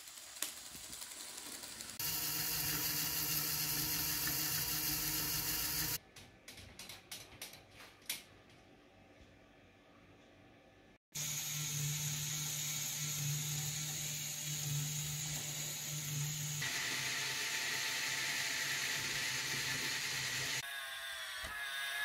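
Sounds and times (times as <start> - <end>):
plastic gears whirring: 0.0 - 6.0
small electric motor whirring: 0.0 - 6.0, 11.2 - 22.0.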